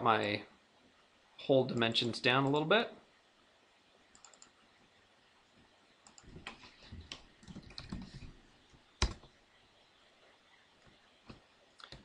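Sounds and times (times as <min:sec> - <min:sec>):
keyboard typing: 0:04.1 - 0:04.6, 0:06.0 - 0:08.2, 0:09.0 - 0:09.3.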